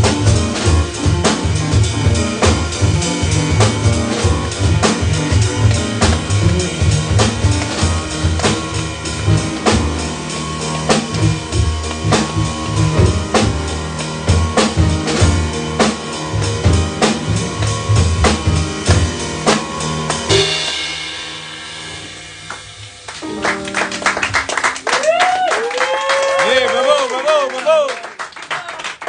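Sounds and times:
jazz band playing: 0.0 - 26.5
cymbal crash: 2.5 - 23.4
audience applause: 22.5 - 29.0.

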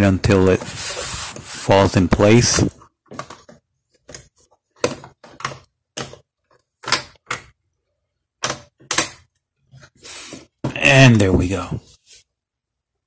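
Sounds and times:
plastic clicks and knocks: 3.0 - 7.6, 8.4 - 9.4.

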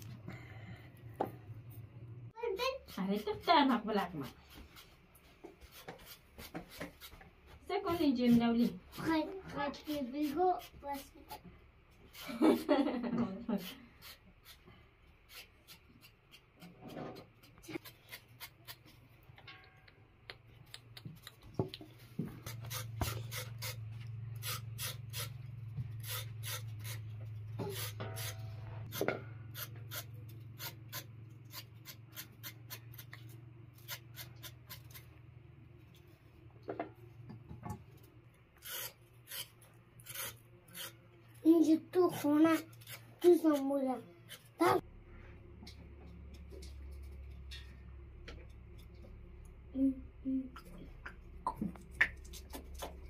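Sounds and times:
low steady hum: 0.0 - 4.3, 43.8 - 53.0
knives scraping vegetable skins: 13.5 - 19.1, 22.4 - 35.1, 38.6 - 41.0, 42.0 - 44.8.

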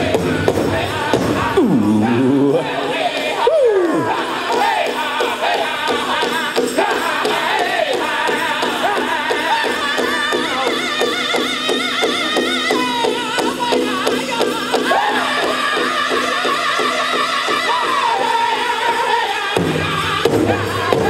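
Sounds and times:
big drum steady beat: 0.0 - 3.0, 18.4 - 21.0
men singing high wavering lines: 0.0 - 21.0.

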